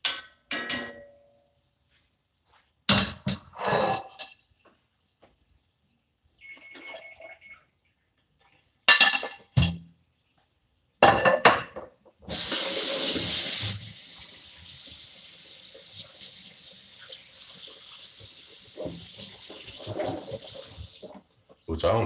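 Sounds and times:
dishes and pans clattering: 0.0 - 1.2, 2.9 - 4.4, 8.9 - 9.8, 11.0 - 13.4, 18.8 - 21.3
tap water running: 12.3 - 21.3.

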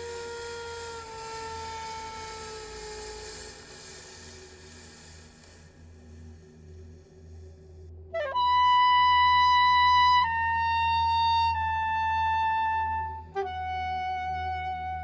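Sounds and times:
soprano saxophone solo: 0.0 - 3.8, 8.2 - 15.0
low steady hum: 0.0 - 15.0.

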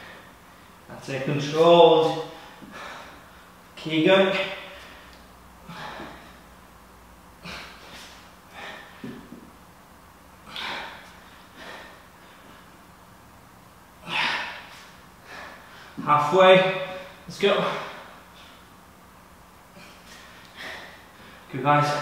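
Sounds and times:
man exhaling hard: 4.7 - 6.4, 10.5 - 12.0, 14.0 - 16.0, 19.8 - 21.5.

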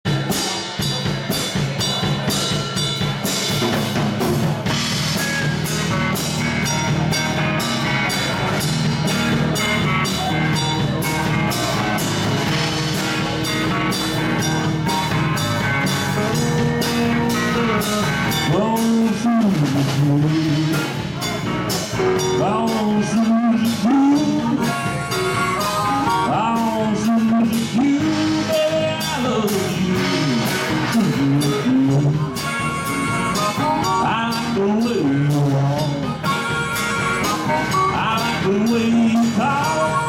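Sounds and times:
drum kit beat: 0.0 - 40.0
live blues band playing: 0.1 - 40.0.

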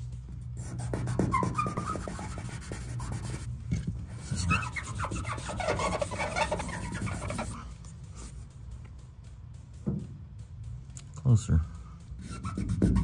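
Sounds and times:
sandpaper rasping on panel: 0.6 - 3.5, 4.1 - 7.6, 12.2 - 13.0.

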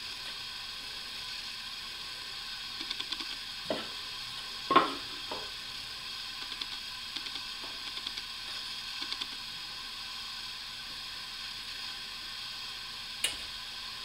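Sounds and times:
steady hiss: 0.0 - 14.0
sharp click: 2.8 - 3.4, 6.4 - 8.3, 9.0 - 9.4.

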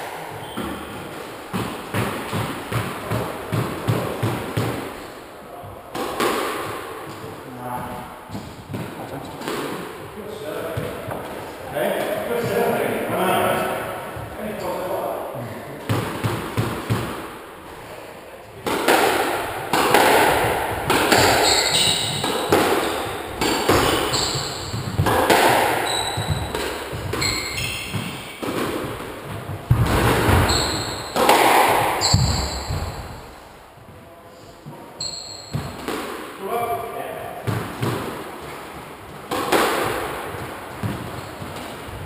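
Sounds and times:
squash ball hits echoing: 0.0 - 7.3, 8.3 - 14.4, 15.8 - 17.4, 18.6 - 33.6, 34.7 - 42.0
shoes squeaking on wooden floor: 0.2 - 4.0, 20.1 - 34.0, 34.6 - 35.9, 37.5 - 42.0.

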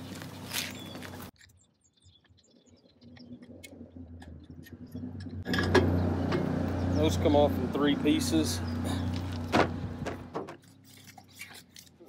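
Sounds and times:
low engine hum: 2.9 - 11.2.

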